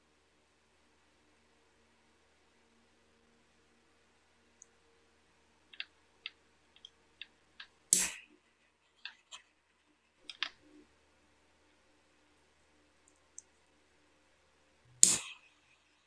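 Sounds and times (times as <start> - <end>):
faint steady hum: 0.0 - 16.0
small clicks and taps: 5.7 - 8.1, 10.2 - 10.8.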